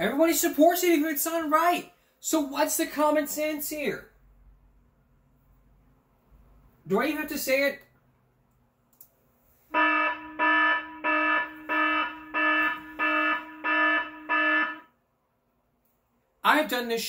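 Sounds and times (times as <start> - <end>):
electronic alarm buzzer: 9.7 - 14.9.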